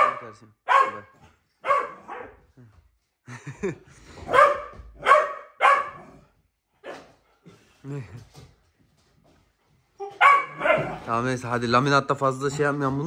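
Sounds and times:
puppy barking: 0:00.0 - 0:02.4, 0:04.3 - 0:06.2, 0:10.0 - 0:11.1.

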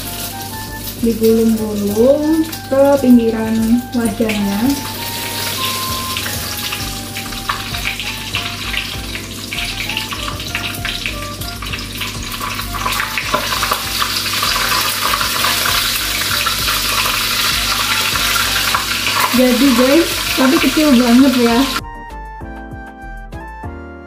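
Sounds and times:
egg frying in hot oil: 0:00.0 - 0:21.8
light background music: 0:00.0 - 0:24.0.

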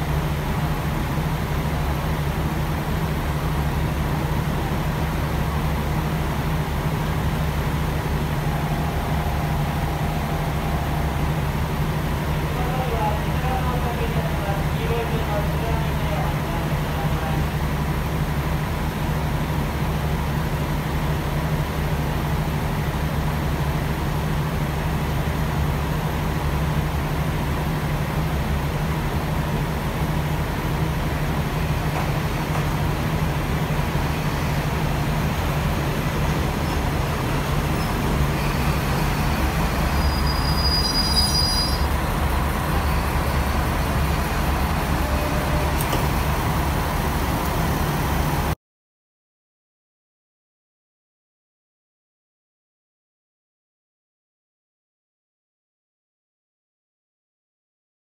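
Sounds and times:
diesel train idling drone: 0:00.0 - 0:48.6
brief high squeal: 0:39.8 - 0:42.0.

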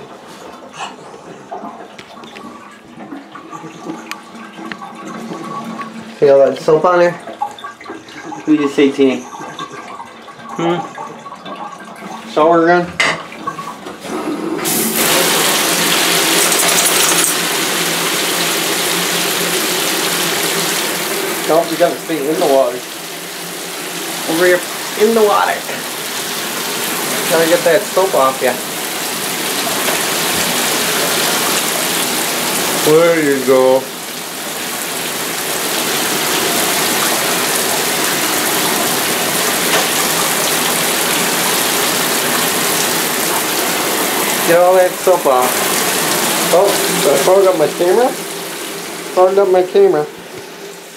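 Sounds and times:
shower sprayer spraying water: 0:14.1 - 0:50.9.

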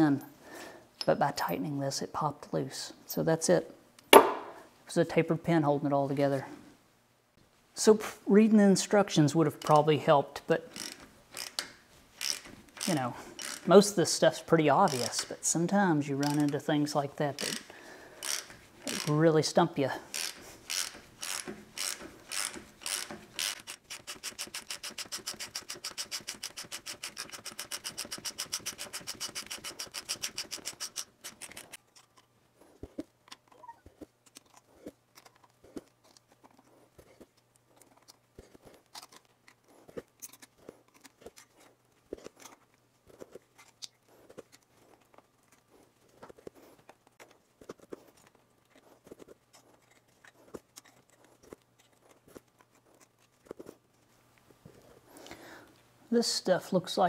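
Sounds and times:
rapid mechanical clicking of crank: 0:10.6 - 0:13.7, 0:14.9 - 0:15.3, 0:16.2 - 0:16.6, 0:17.3 - 0:19.2, 0:20.1 - 0:31.8.

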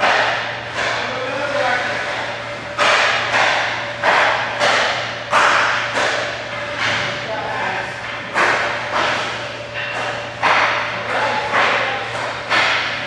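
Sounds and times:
pucks banging into boards: 0:00.0 - 0:07.2, 0:08.0 - 0:13.0
hockey sticks hitting pucks: 0:00.0 - 0:13.0
steady low hum: 0:00.0 - 0:13.0.

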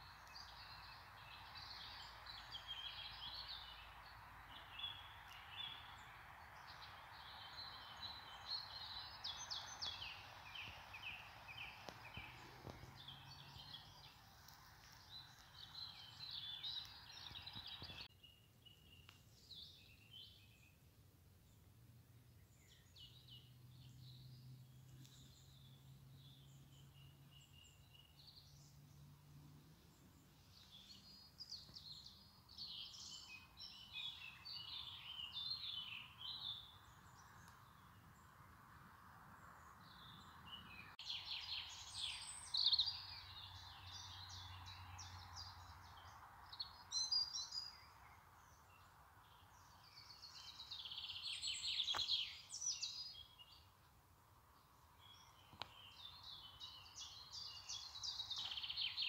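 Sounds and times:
faint steady hiss: 0:00.0 - 0:22.7
songbirds chirping: 0:00.0 - 0:59.0.

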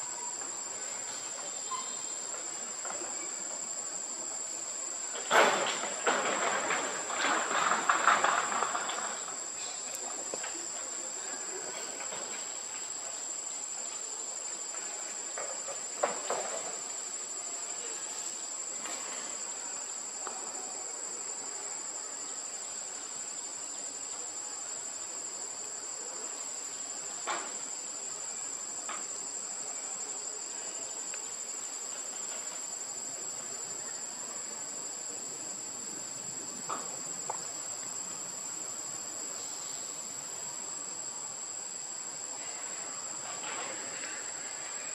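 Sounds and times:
shrill insect chorus: 0:00.0 - 0:44.9.

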